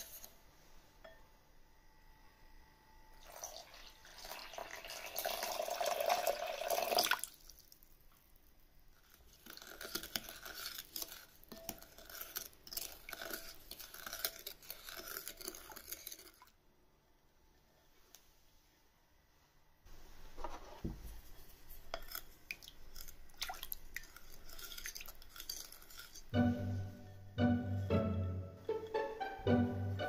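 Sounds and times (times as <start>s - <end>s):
spoon scraping glass bowl: 0.0s - 0.4s, 9.0s - 16.5s, 21.3s - 27.3s
wooden spoon stirring liquid: 0.0s - 0.4s, 9.0s - 16.6s, 20.4s - 27.5s
water pouring into glass bowl: 3.2s - 7.7s.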